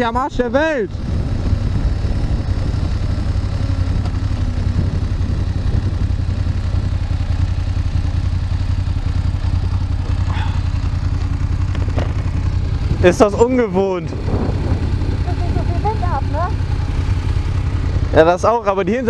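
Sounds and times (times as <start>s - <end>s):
motorcycle engine running: 0.0s - 19.0s.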